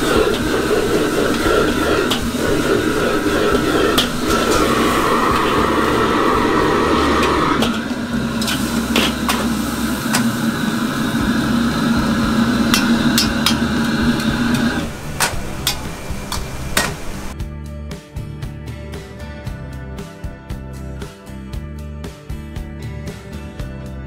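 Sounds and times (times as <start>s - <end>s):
ladle and strainer clanking on wok: 0.0s - 5.8s, 7.1s - 10.3s
wok burner rushing: 0.0s - 17.4s.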